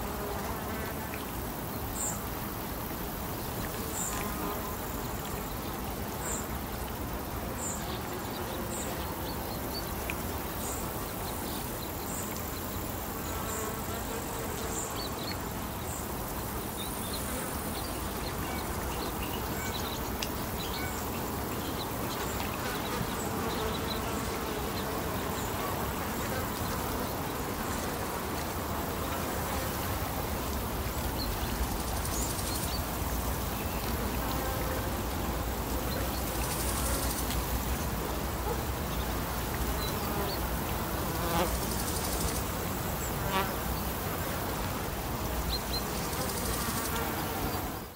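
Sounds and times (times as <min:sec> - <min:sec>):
insects buzzing: 0:00.0 - 0:47.9
water and wind noise: 0:14.6 - 0:47.9.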